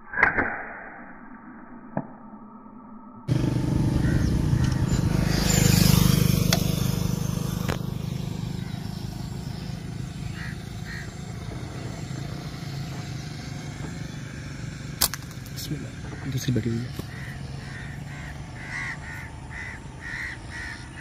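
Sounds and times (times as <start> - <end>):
vehicle driving past: 3.3 - 21.0
sharp clicks: 15.0 - 15.6.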